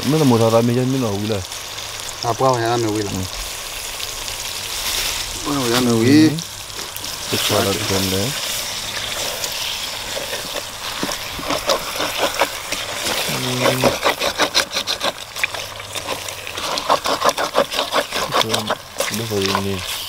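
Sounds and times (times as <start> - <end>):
food sizzling in a pan: 0.0 - 20.0
utensil scraping a pan: 6.8 - 20.0.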